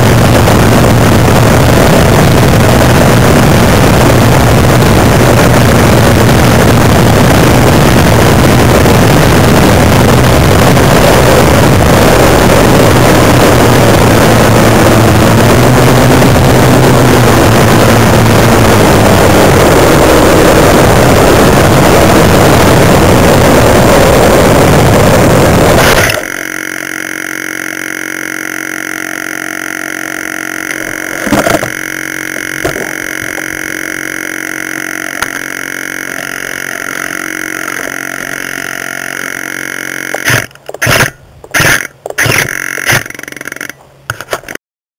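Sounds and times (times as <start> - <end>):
wind rush: 0.0 - 26.3
electric motor noise: 0.0 - 44.6
quiet steady hum with tones: 0.0 - 44.6.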